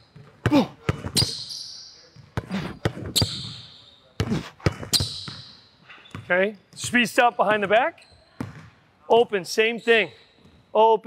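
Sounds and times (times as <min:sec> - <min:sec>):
sneaker squeaks on floor: 0:00.0 - 0:08.8, 0:09.5 - 0:10.7
basketball bouncing on hardwood: 0:08.4 - 0:08.7.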